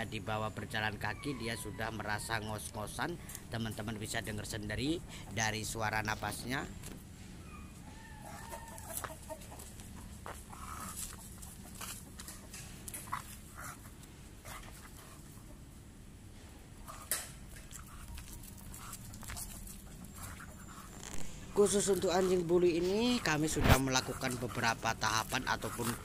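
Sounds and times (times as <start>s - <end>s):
dog panting heavily: 17.7s - 26.0s.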